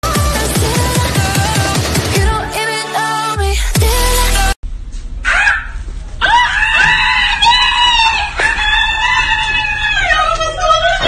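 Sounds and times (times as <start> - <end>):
person screaming: 5.2 - 10.0.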